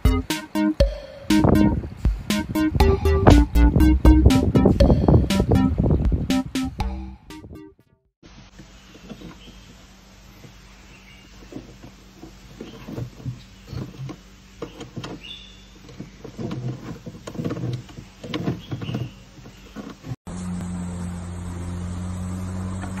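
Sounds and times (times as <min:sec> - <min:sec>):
steady low hum: 0:00.0 - 0:07.4
short high chirps: 0:00.1 - 0:07.7
animals scuffling and scraping: 0:08.6 - 0:20.2.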